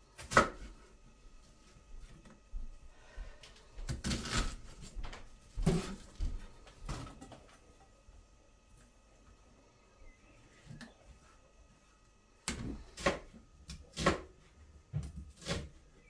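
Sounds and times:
objects knocking and clunking: 0:05.0 - 0:08.0.

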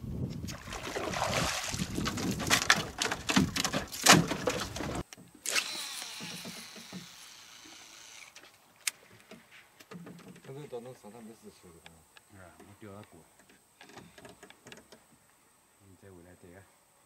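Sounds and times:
fish thrashing against boat hull: 0:00.7 - 0:05.0
fishing reel spool whirring: 0:05.4 - 0:08.4.

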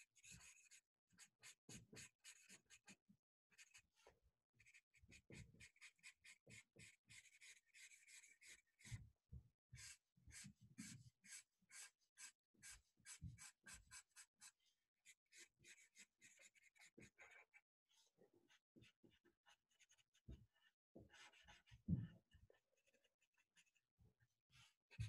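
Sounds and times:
marker scratching on paper: 0:00.2 - 0:03.9, 0:04.6 - 0:09.0, 0:09.7 - 0:17.6, 0:18.5 - 0:20.4, 0:21.0 - 0:21.8, 0:22.8 - 0:23.8.

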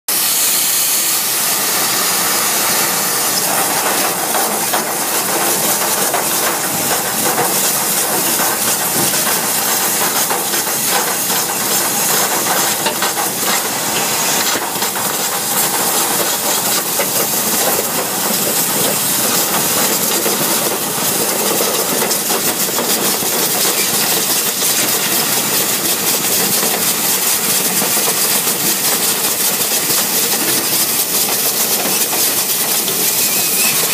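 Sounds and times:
compressed air hissing: 0:00.1 - 0:21.2
hose and debris rattling in duct: 0:00.1 - 0:33.9.

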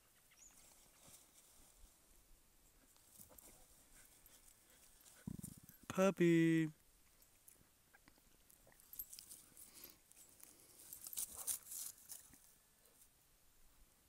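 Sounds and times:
paws crunching dry leaves: 0:09.0 - 0:12.5.

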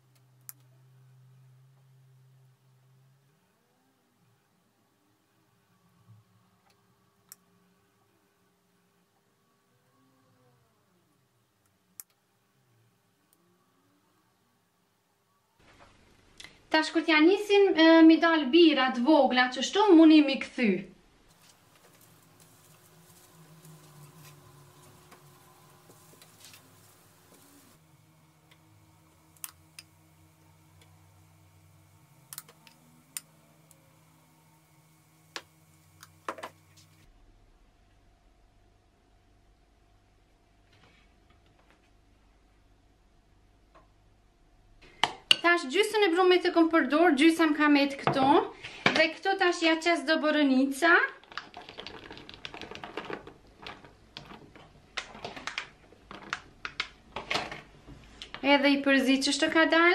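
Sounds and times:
faint low hum: 0:00.0 - 0:59.9.

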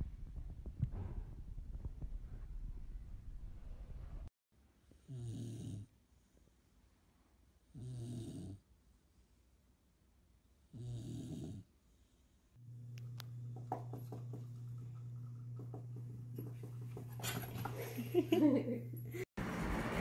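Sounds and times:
dog snoring: 0:05.0 - 0:05.9, 0:07.7 - 0:08.6, 0:10.7 - 0:11.7
low hum: 0:12.6 - 0:20.0.

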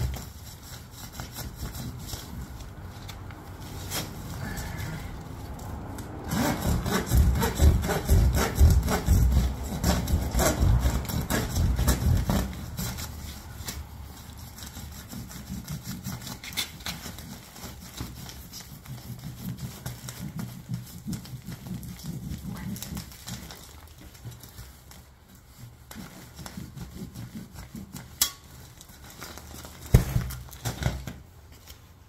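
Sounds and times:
handsaw cutting insulation: 0:00.0 - 0:02.6, 0:06.0 - 0:23.8
scraping and rustling: 0:00.0 - 0:32.0.

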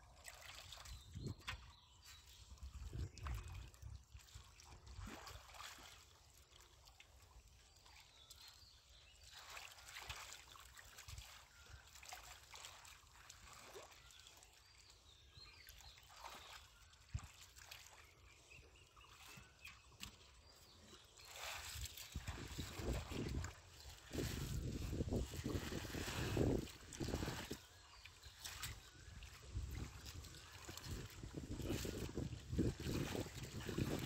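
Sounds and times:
hands splashing in muddy water: 0:02.9 - 0:06.2, 0:19.2 - 0:34.0.

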